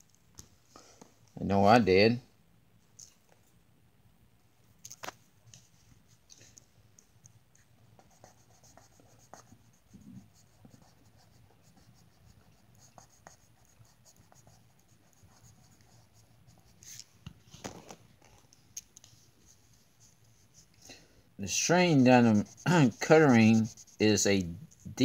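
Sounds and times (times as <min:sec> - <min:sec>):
marker scratching on paper: 0:08.0 - 0:17.1, 0:21.5 - 0:25.0.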